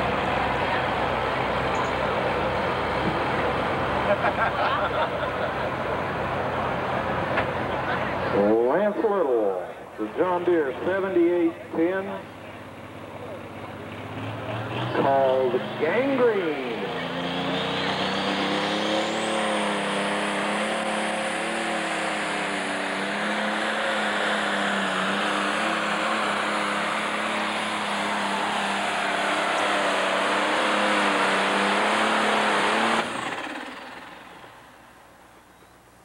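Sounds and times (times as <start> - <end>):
tractor engine running flat out: 11.4 - 35.3.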